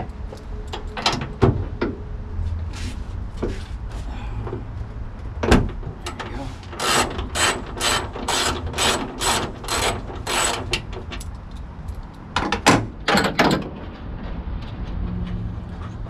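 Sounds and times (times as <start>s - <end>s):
ratchet wrench clicking: 6.8s - 12.2s.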